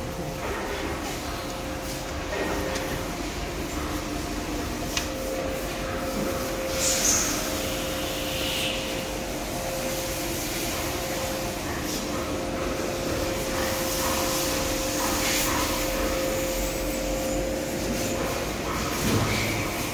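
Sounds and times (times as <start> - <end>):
machine hum: 0.0 - 19.9.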